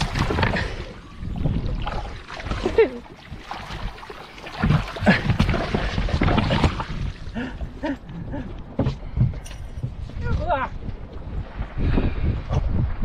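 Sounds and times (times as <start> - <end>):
water splashing from thrashing fish: 0.0 - 7.5
wind on microphone: 0.0 - 13.0.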